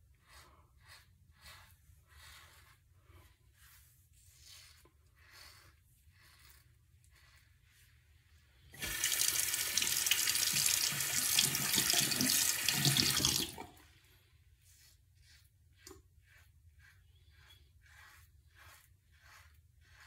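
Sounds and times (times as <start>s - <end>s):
razor rinsed under water: 0.2s - 20.0s
sink faucet running: 8.8s - 13.8s.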